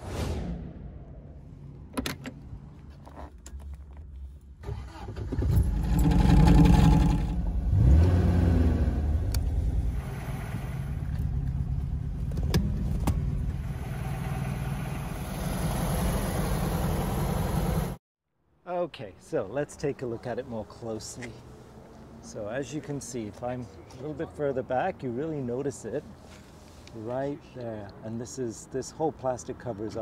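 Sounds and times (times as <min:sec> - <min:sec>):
car engine starting and idling: 0:01.8 - 0:18.0.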